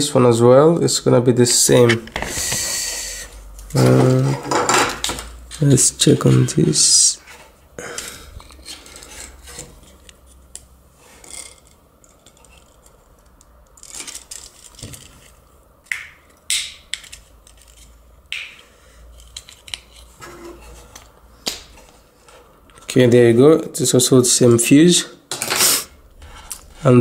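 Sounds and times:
sharp plastic snaps: 15.9 - 17.5.

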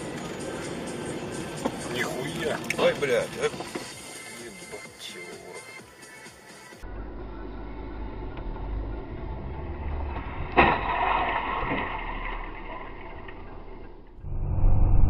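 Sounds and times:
car driving rumble: 6.9 - 15.0
car crash: 9.7 - 14.1.

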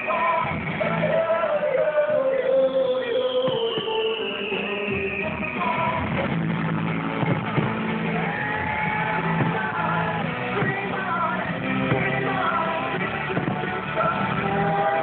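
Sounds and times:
music with singing over loudspeakers: 0.0 - 15.0
firework bangs: 3.3 - 11.1, 11.7 - 15.0.

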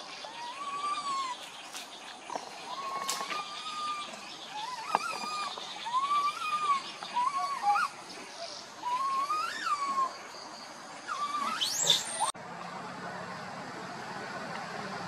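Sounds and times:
young monkey coo calls: 0.2 - 1.5, 2.6 - 10.2, 11.1 - 12.3.

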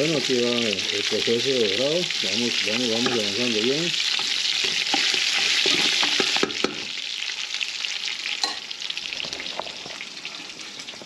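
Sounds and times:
ribs sizzling in a pot: 0.0 - 11.0
spoon clinking and scraping pot: 2.8 - 3.4, 4.1 - 6.8, 8.4 - 8.7.

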